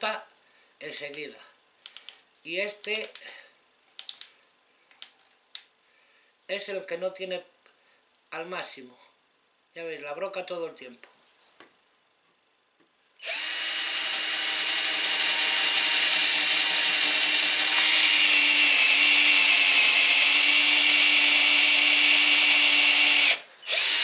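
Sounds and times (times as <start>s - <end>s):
cordless drill boring wood: 13.2s - 24.0s.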